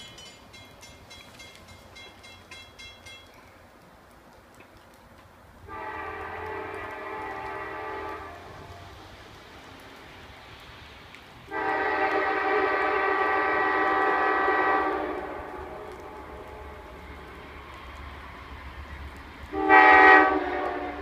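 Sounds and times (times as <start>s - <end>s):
locomotive horn blast: 5.7s - 9.1s, 11.5s - 17.0s, 19.5s - 21.0s.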